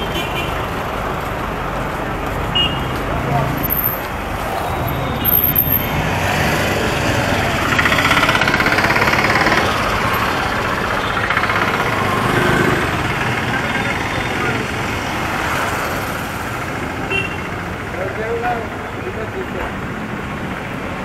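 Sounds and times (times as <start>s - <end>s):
passing vehicle engines: 0.0s - 21.0s
engine rapid even pulsing: 3.2s - 16.3s.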